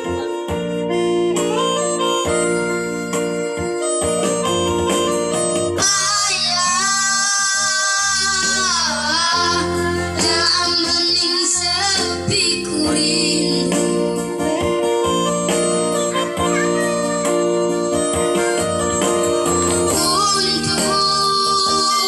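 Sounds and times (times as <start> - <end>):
electronic keyboard: 0.0 - 22.0
boys singing: 5.8 - 13.8, 19.9 - 22.0.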